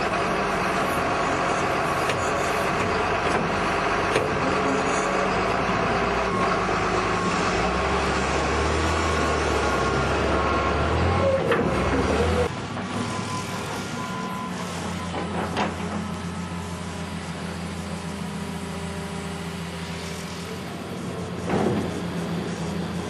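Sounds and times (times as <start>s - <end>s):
heavy machine engine running: 0.0s - 23.0s.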